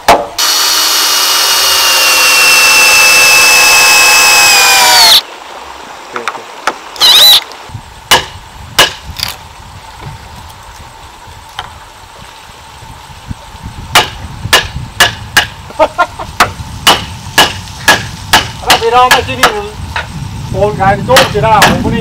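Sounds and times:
cordless drill whirring: 0.4 - 5.2.

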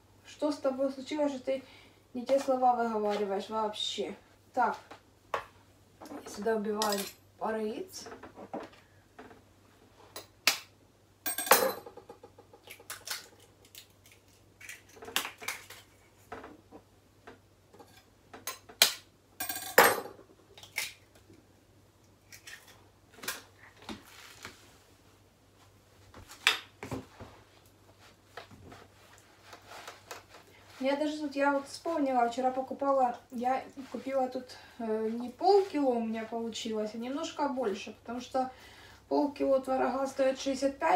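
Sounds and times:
knife cracking eggs: 12.6 - 15.9.

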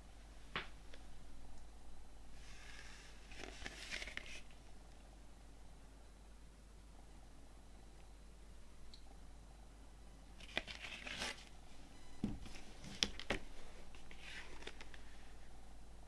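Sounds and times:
cardboard rustling: 2.4 - 4.6, 10.4 - 11.5, 12.4 - 15.3.

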